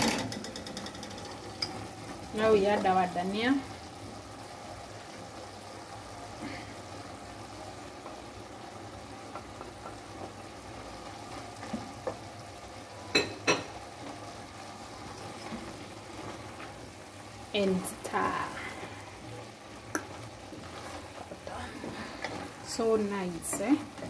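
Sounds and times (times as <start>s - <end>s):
stew sizzling in a pot: 0.0s - 24.0s
wooden spoon scraping: 20.0s - 24.0s.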